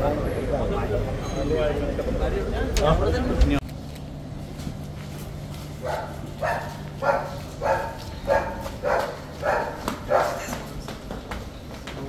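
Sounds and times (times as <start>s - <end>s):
dog barking: 5.8s - 10.6s.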